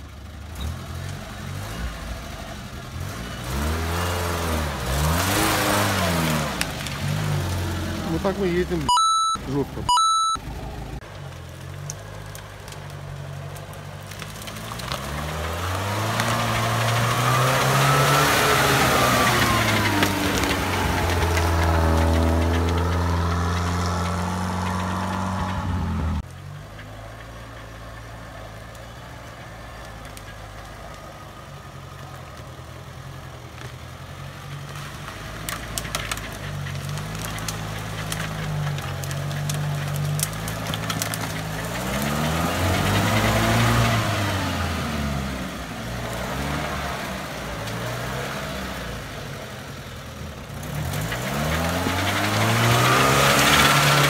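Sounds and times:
off-road vehicle engine: 0.0s - 54.0s
sharp cracks: 34.6s - 44.1s.

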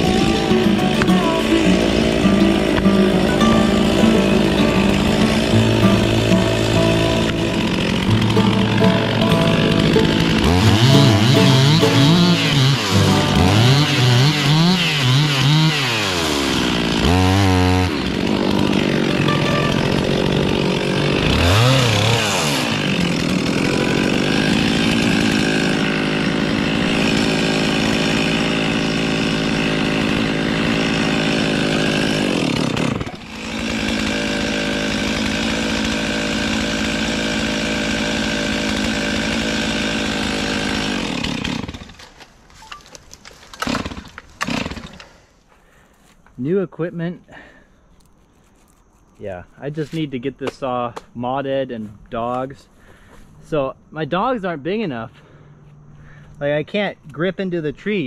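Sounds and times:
chainsaw revving and cutting: 0.0s - 42.2s, 43.5s - 45.2s.

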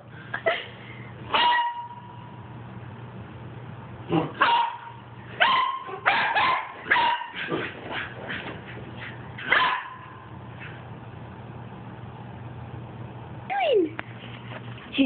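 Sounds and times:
puppy yipping: 4.4s - 7.5s, 9.4s - 10.1s.

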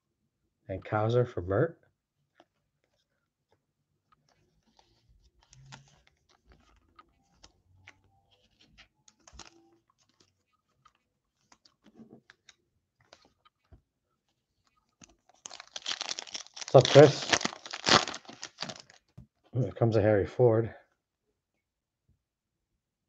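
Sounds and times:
cards clicking and rubbing: 4.2s - 19.2s.

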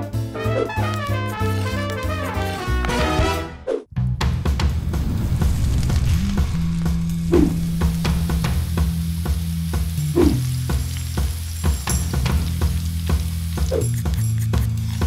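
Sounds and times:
background music with bass: 0.0s - 15.0s
crackling sizzling: 4.8s - 15.0s.

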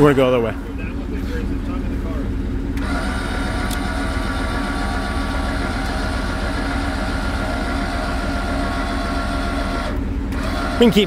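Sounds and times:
electric jack motor running: 2.8s - 11.0s.

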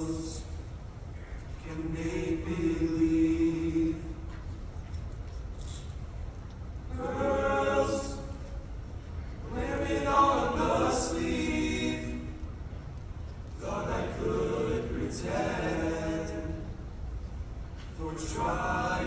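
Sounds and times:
choir singing a cappella: 0.0s - 0.5s, 1.6s - 4.4s, 6.9s - 8.6s, 9.4s - 12.6s, 13.5s - 17.0s, 17.8s - 19.0s.

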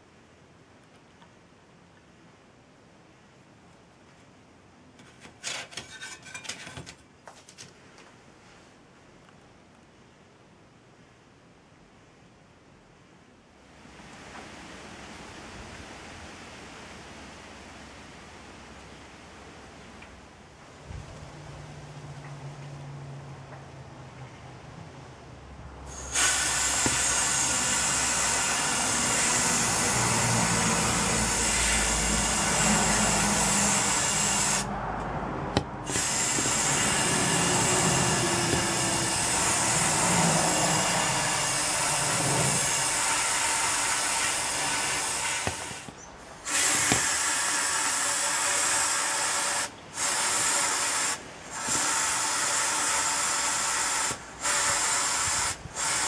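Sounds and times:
blast gun air hiss: 25.9s - 28.3s.

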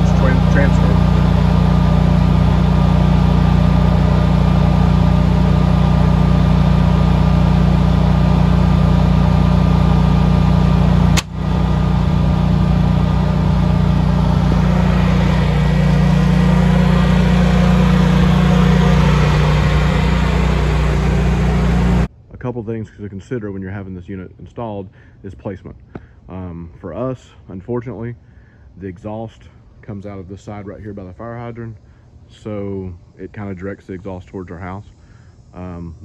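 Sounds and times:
generator engine running: 0.0s - 22.1s.

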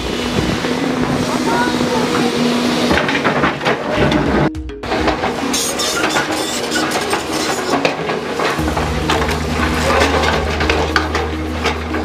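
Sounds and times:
excavator engine running: 0.0s - 12.0s
excavator bucket scraping rock: 5.1s - 12.0s
low engine hum: 8.0s - 12.0s.

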